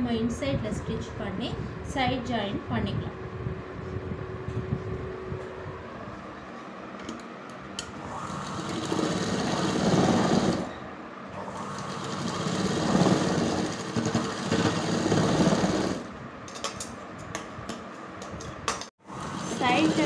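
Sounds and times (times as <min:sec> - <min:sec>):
sewing machine stitching: 0:08.4 - 0:10.7, 0:11.4 - 0:16.1.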